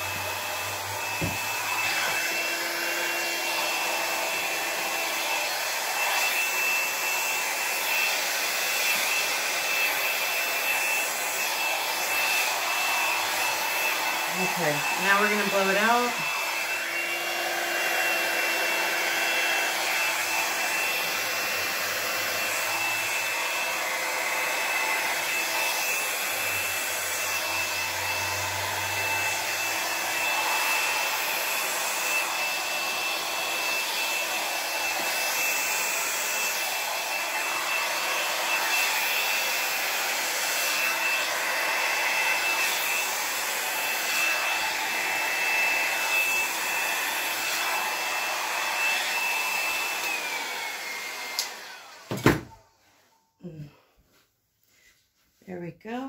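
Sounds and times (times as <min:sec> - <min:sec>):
hair dryer running: 0:00.0 - 0:53.7.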